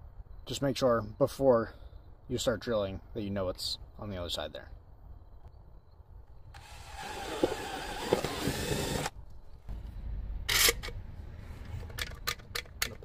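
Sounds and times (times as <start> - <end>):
cordless drill boring through siding: 6.6 - 9.1.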